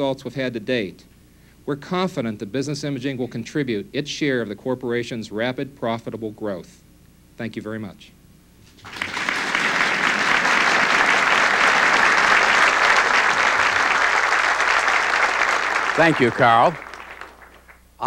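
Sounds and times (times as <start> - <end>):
audience applauding: 8.8 - 17.8.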